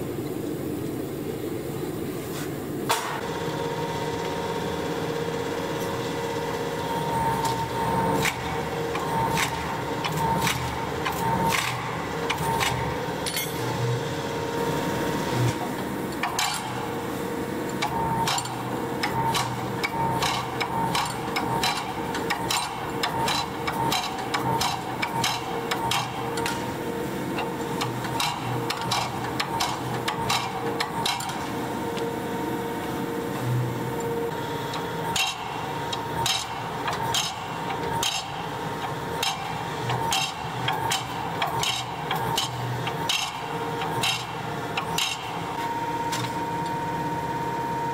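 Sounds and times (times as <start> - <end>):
power hammer striking steel: 13.2 - 13.8.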